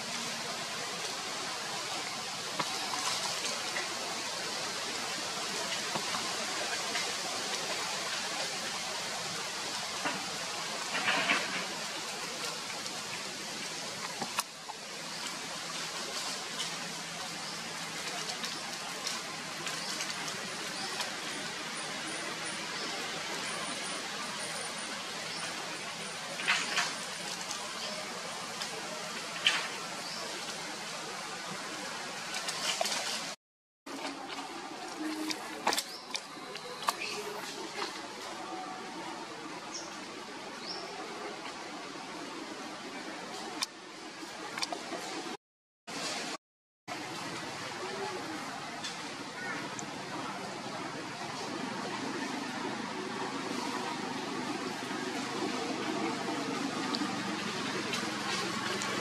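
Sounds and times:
outdoor background hiss: 0:00.0 - 0:33.4.

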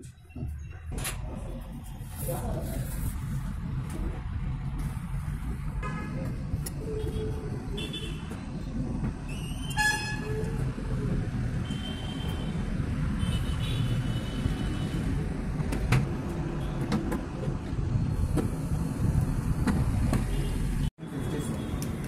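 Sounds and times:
street traffic rumble: 0:00.0 - 0:22.0
vehicle horn toots: 0:09.8 - 0:10.5.

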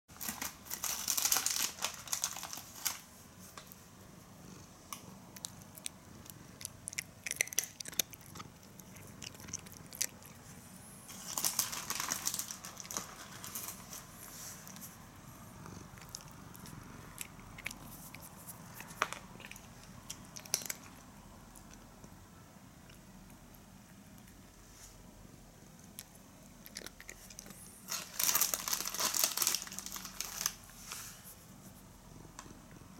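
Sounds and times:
cat crunching food: 0:00.2 - 0:03.8, 0:04.4 - 0:22.2, 0:25.8 - 0:30.7.

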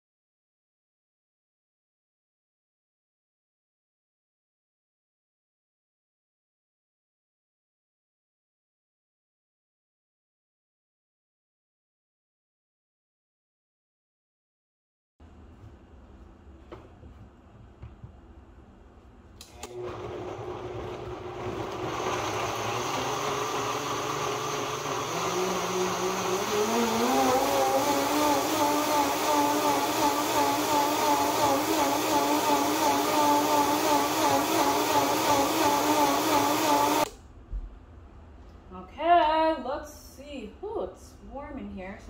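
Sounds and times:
electric blender running: 0:19.4 - 0:37.1.

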